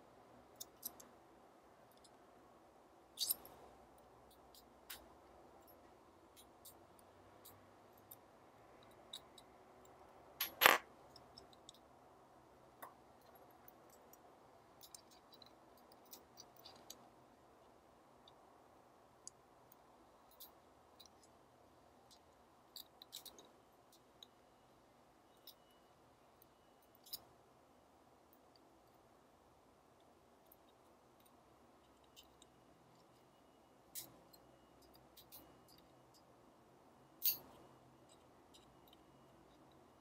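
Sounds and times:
small metal clicks and scrapes: 0.5 - 1.2, 3.2 - 11.9, 12.8 - 17.2, 22.0 - 24.4, 26.4 - 27.3, 30.0 - 36.3, 37.2 - 40.0.

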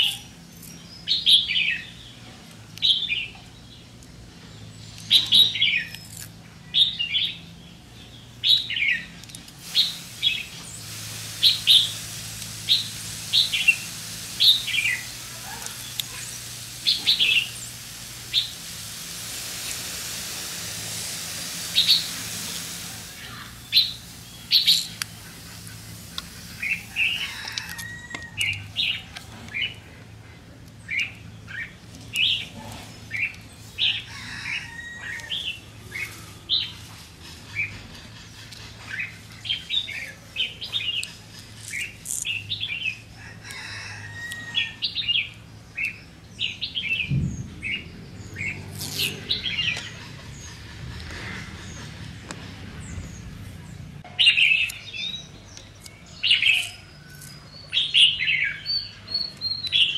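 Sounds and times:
soft steady hiss: 0.0 - 36.8
small birds chirping: 0.0 - 59.9.

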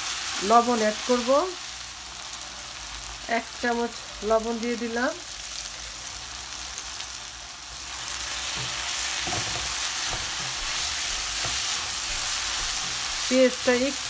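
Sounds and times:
onions sizzling in a pan: 0.0 - 14.0
spatula scraping a pan: 7.9 - 13.4.

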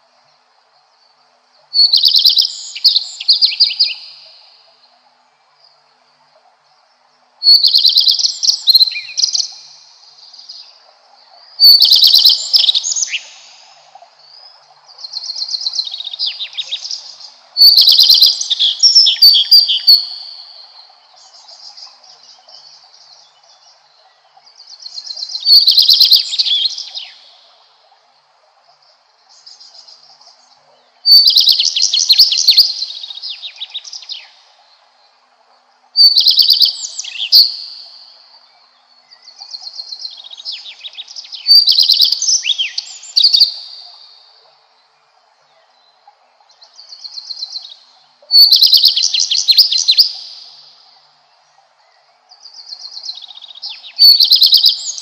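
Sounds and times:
faint steady hum: 0.0 - 48.4
bird singing: 0.8 - 55.0.

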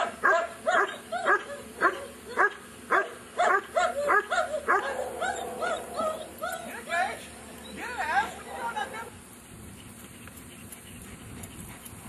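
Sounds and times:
dog barking rhythmically: 0.0 - 6.2.

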